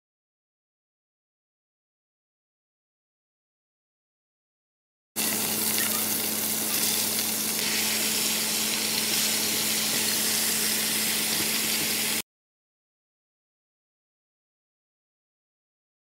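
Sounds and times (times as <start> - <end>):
beef sizzling in hot oil: 5.2 - 12.2.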